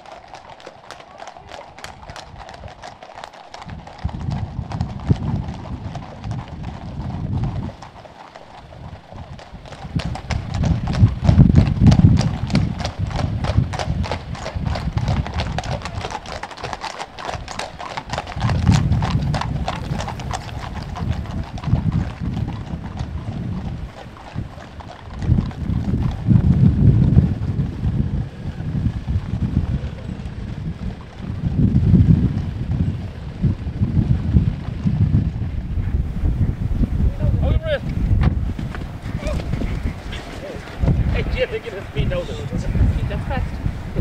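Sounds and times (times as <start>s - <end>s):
horse hooves trotting on tarmac: 0.0s - 44.0s
low rumble: 18.3s - 24.6s.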